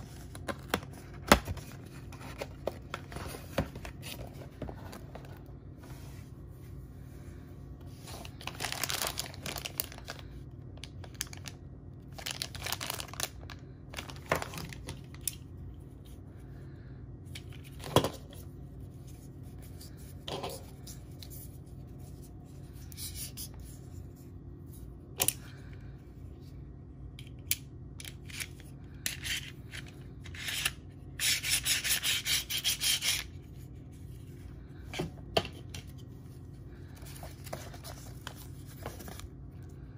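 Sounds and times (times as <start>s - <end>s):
plastic and cardboard rustling: 0.0s - 6.3s, 7.9s - 10.2s, 35.1s - 39.5s.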